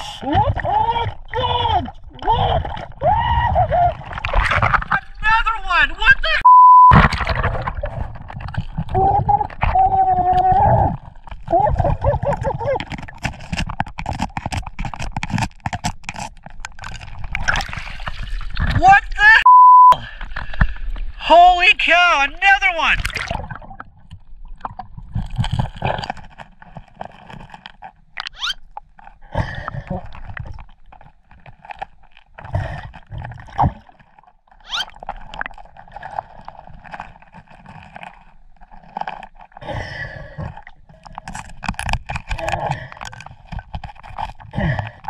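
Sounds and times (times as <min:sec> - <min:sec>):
bubbles gurgling: 0:06.9 - 0:13.2, 0:23.0 - 0:26.3
knocks and scrapes against rock: 0:12.2 - 0:18.8, 0:25.1 - 0:28.1, 0:29.9 - 0:34.3, 0:34.9 - 0:39.6, 0:40.2 - 0:45.0.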